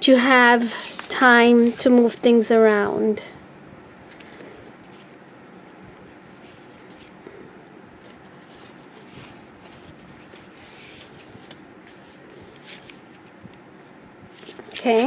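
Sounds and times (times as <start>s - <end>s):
paper rustling and rubbing: 0.7s - 2.2s, 4.0s - 7.2s, 8.0s - 13.4s, 14.3s - 15.0s.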